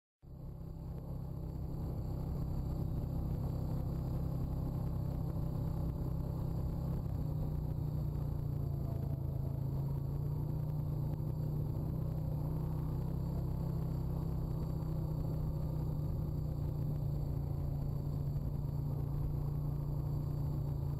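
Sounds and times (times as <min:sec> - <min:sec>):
quad bike engine rumbling: 0:00.3 - 0:20.9.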